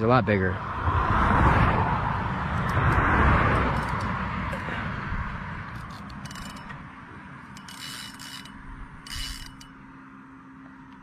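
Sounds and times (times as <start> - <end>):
fishing reel clicks: 5.8 - 6.7, 7.5 - 9.8.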